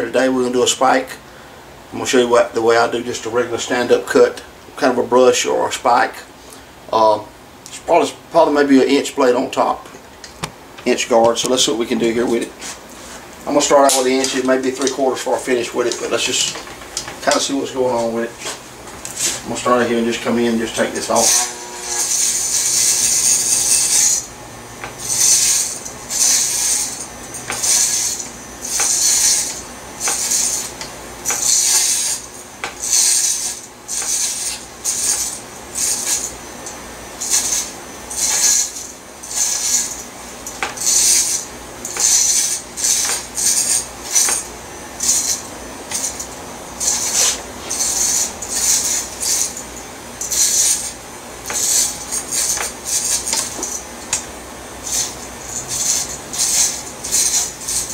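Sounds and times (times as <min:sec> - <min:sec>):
electric hair clippers rasping: 0:21.2 - 0:36.4.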